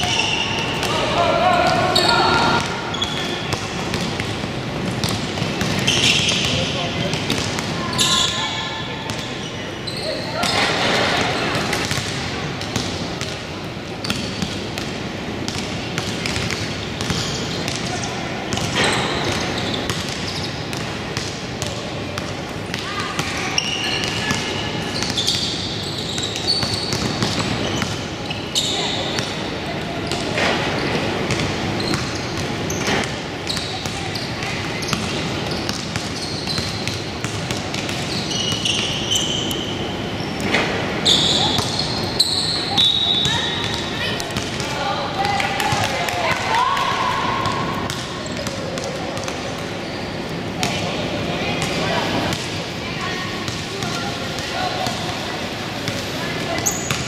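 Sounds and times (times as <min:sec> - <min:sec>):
crowd and player voices: 0:00.0 - 0:57.0
sneakers squeaking: 0:00.0 - 0:57.0
basketball bouncing on court: 0:01.7 - 0:08.4, 0:10.4 - 0:13.4, 0:14.0 - 0:28.1, 0:30.1 - 0:39.0, 0:42.8 - 0:46.2, 0:47.4 - 0:49.7
crowd murmur: 0:27.4 - 0:31.8, 0:39.6 - 0:57.0.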